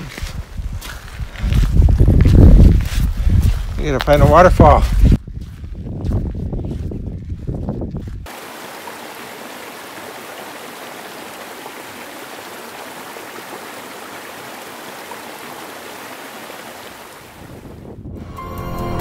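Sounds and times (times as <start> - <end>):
flowing water rushing: 8.3 - 17.6.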